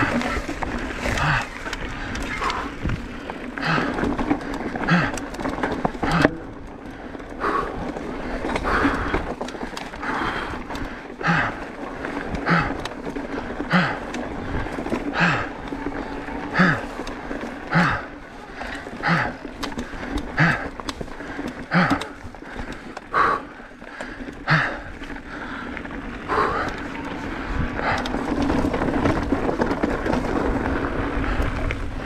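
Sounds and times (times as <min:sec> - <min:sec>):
wind rumble on microphone: 0:00.0 - 0:04.8, 0:24.8 - 0:32.0
person breathing hard: 0:00.0 - 0:28.7
bike rattling over rocky trail: 0:00.0 - 0:32.0.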